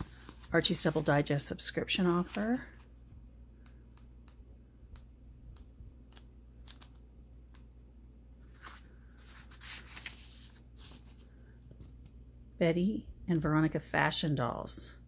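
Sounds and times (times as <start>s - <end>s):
paper pages turning: 0.0s - 1.3s, 2.0s - 2.9s, 6.1s - 7.0s, 8.4s - 12.0s.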